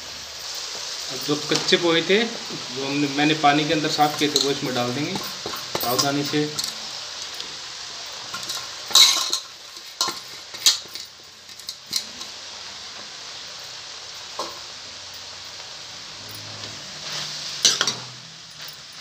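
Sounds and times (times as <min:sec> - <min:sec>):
low steady sizzle: 0:00.0 - 0:19.0
metal utensils clinking on a pan: 0:03.9 - 0:06.9, 0:08.3 - 0:12.4, 0:17.2 - 0:19.0.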